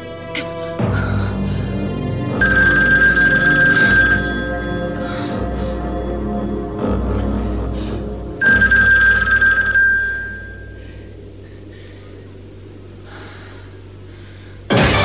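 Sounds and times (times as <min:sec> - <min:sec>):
low steady hum: 0:00.0 - 0:15.0
telephone bell ringing: 0:02.4 - 0:06.6, 0:08.4 - 0:10.8.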